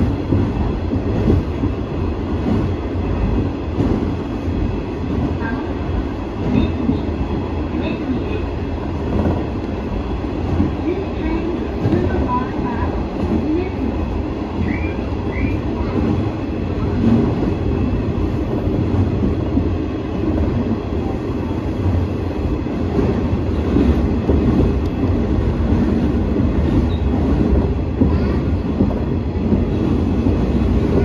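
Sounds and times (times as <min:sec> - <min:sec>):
diesel railcar engine rumble: 0:00.0 - 0:31.0.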